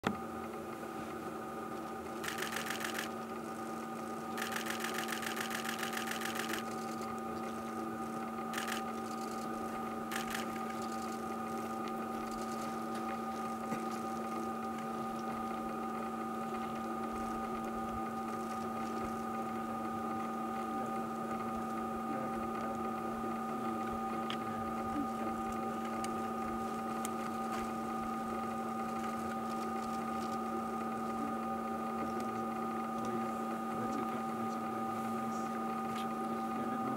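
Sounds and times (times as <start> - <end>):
steady mechanical hum: 0.0 - 36.9
rapid clicking: 2.2 - 3.2, 4.3 - 7.2, 8.5 - 11.2.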